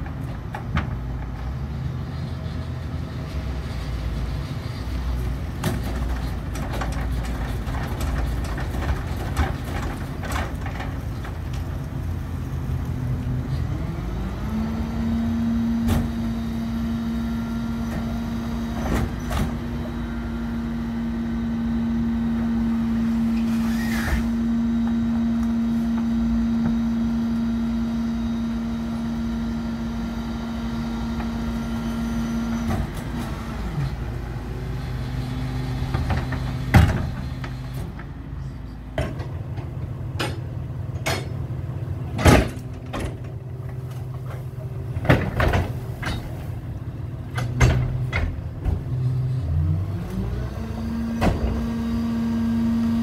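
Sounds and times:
garbage truck engine running: 0.0 - 53.0
loud metal clunks and bangs: 35.9 - 38.0, 38.9 - 41.4, 42.1 - 43.7, 44.9 - 46.6, 47.3 - 49.0, 51.2 - 51.7.

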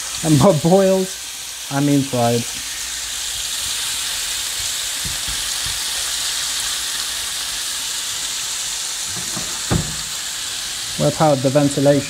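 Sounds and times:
chicken sizzling in a pan: 0.0 - 12.0
soft knocks in pan: 9.1 - 10.2.

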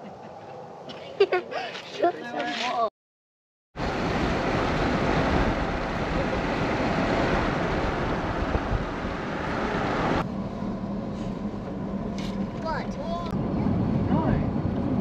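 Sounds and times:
wind and road noise from car: 3.8 - 15.0.

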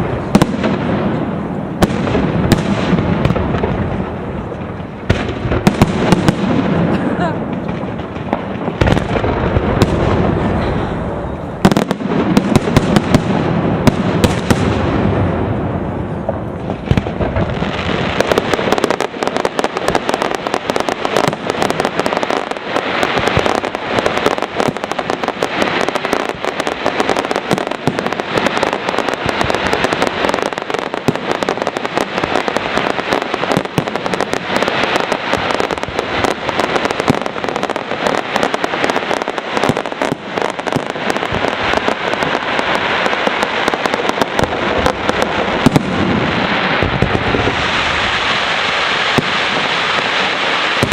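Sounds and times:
firework booms: 0.0 - 50.9
rapid firework reports: 16.2 - 50.9.

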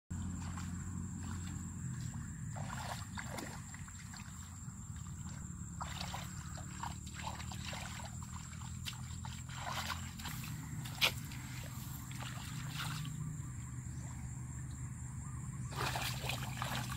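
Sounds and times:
steady low rumble: 0.1 - 15.8
hands splashing in muddy water: 2.5 - 4.5, 5.2 - 13.2, 15.7 - 16.9.

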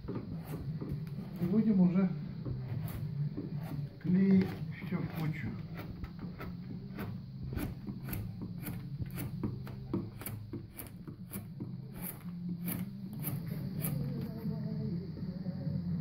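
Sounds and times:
steady low hum: 0.0 - 16.0
chisel paring wood: 2.4 - 14.3.

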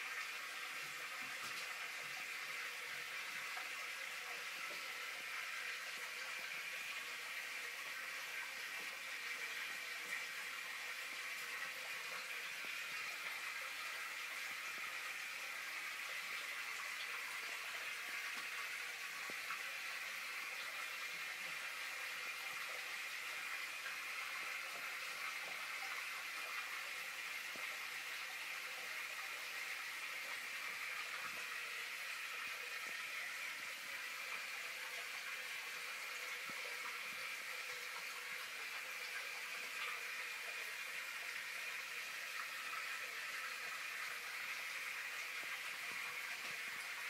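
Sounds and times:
aquarium water trickling and bubbling: 0.0 - 47.0.

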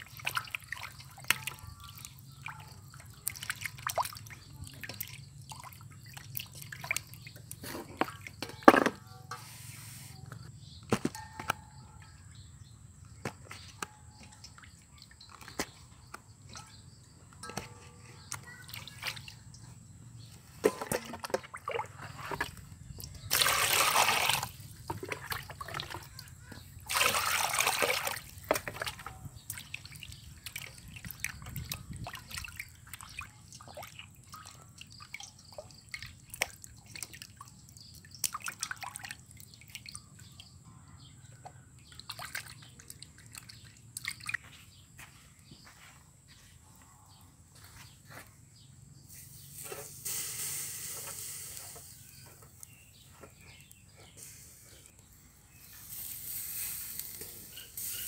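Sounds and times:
fish washed by hand splashing: 0.0 - 8.4, 23.1 - 40.2, 41.8 - 44.5
water sloshing in a steel bowl: 0.0 - 9.5, 13.4 - 44.6.

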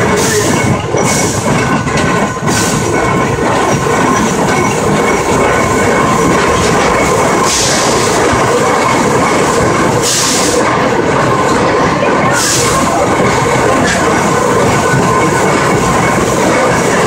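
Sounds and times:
train wheels rumbling: 0.0 - 17.0.

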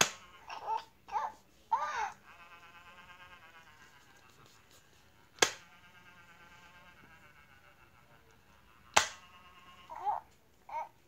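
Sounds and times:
faint thin buzz: 0.0 - 10.8
sharp taps on plastic shell: 9.0 - 9.2.

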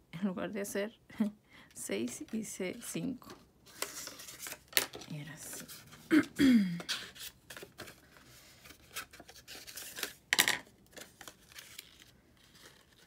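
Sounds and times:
paper rustling: 2.7 - 6.0, 6.8 - 10.2, 10.8 - 13.0.

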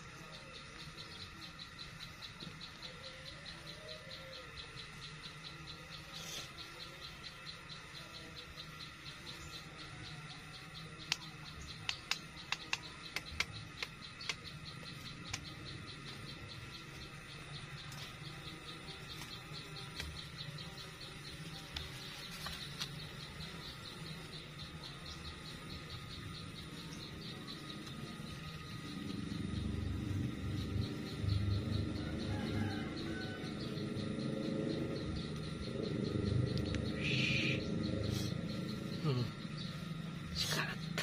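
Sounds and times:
insects chirring: 0.0 - 41.0
sharp clicks: 10.9 - 16.5, 19.1 - 20.6, 35.2 - 37.1.

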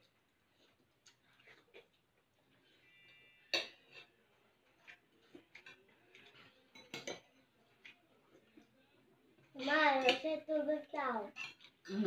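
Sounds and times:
cutlery clinking against plates: 3.4 - 4.2, 4.8 - 8.0, 9.6 - 10.4, 11.3 - 11.9.

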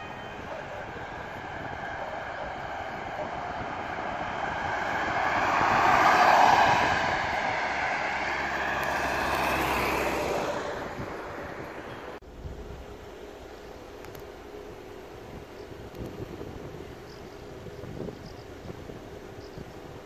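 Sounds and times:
ambulance siren: 0.0 - 12.2
vehicle engine and tyres: 0.0 - 20.0.

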